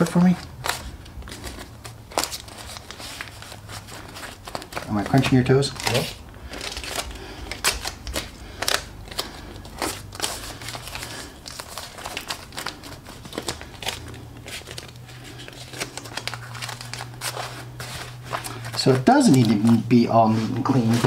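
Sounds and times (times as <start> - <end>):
tape rasping and crinkling: 0.0 - 21.0.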